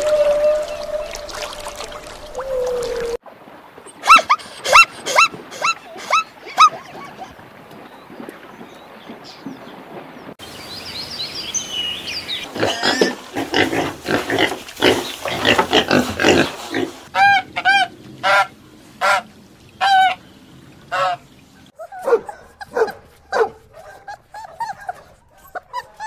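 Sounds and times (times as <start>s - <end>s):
pig grunting and squealing: 12.4s - 18.5s
waterfowl honking: 17.1s - 20.2s, 20.9s - 21.2s.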